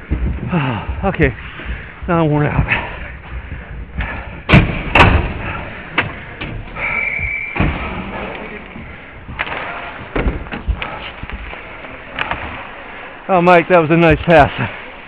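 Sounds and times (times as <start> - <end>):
general rink noise: 5.4 - 15.0.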